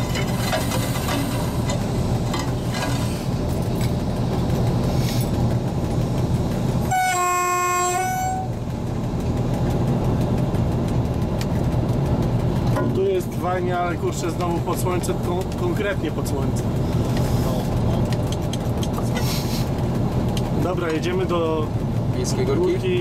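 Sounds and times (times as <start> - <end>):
diesel locomotive running: 0.0 - 23.0
wheels clattering over rail joints: 0.0 - 23.0
locomotive horn blast: 6.8 - 8.6.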